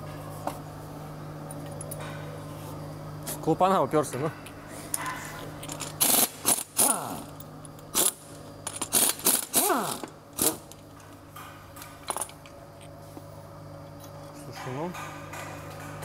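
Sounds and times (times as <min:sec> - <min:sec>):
low steady hum: 0:00.0 - 0:16.0
power ratchet clicking: 0:05.7 - 0:07.3, 0:07.9 - 0:10.8
ratchet whirring: 0:05.7 - 0:10.8.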